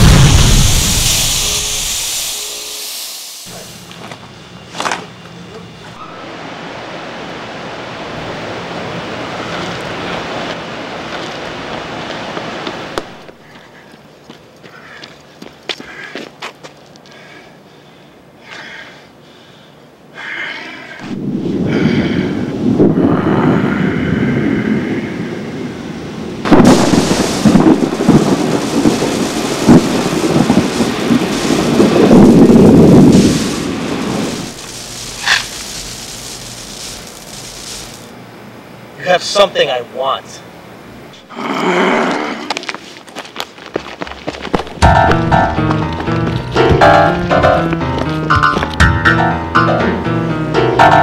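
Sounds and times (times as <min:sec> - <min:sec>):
thunder cracking and rumbling: 0:00.0 - 0:02.0, 0:21.0 - 0:37.4
wind on microphone: 0:21.0 - 0:36.1.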